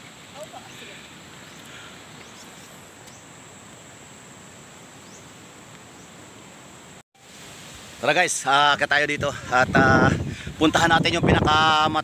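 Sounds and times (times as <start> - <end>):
insects trilling: 0.0 - 7.0
background hiss: 0.0 - 12.0
faint bird chirps: 0.4 - 3.3, 5.0 - 6.2.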